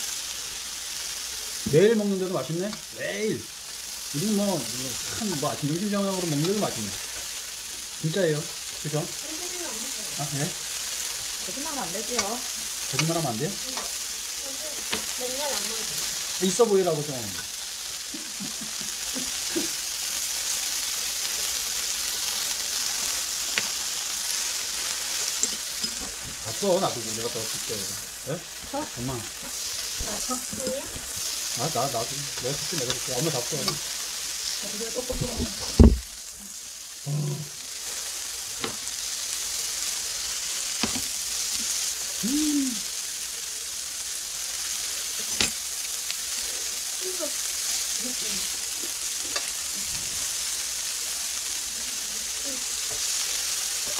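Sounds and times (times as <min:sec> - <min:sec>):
beef sizzling on grill: 0:00.0 - 0:53.9
metal tongs clicking on pan: 0:12.1 - 0:12.4.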